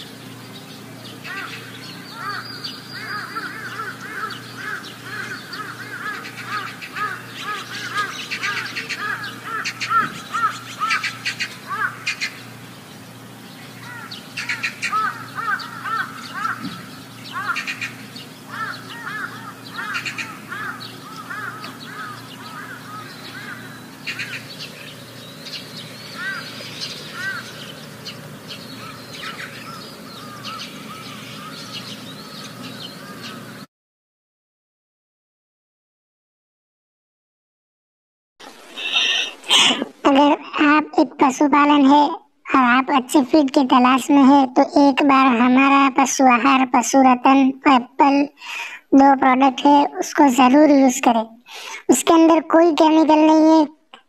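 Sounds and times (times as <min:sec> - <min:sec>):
birds chirping and calling: 0:00.0 - 0:33.7, 0:38.4 - 0:42.0, 0:43.0 - 0:51.9
steady low hum: 0:00.0 - 0:33.7.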